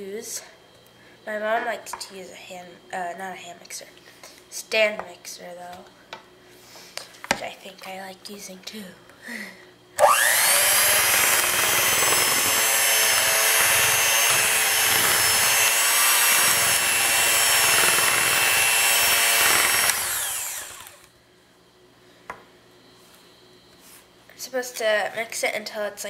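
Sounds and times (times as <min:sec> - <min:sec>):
electric hand mixer whirring: 0:10.0 - 0:21.1.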